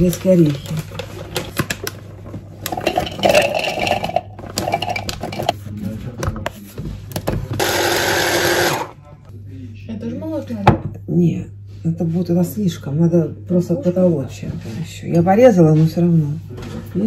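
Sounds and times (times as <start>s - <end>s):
kitchen utensils clattering: 2.6s - 5.6s
electric grinder grinding nuts: 7.6s - 9.0s.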